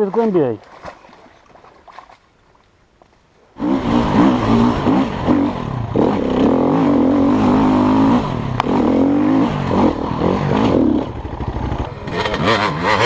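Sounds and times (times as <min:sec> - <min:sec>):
dirt bike engine revving: 0:03.6 - 0:13.0.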